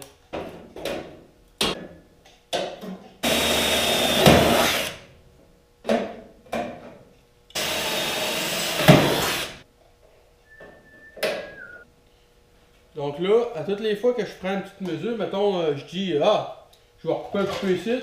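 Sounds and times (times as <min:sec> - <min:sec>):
power drill boring through steel: 0:03.2 - 0:05.0, 0:07.6 - 0:09.6.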